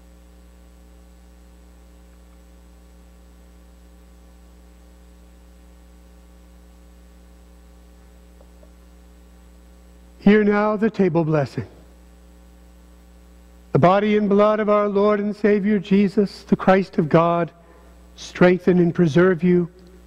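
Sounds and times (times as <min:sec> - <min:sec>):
electrical mains hum: 0:00.0 - 0:20.0.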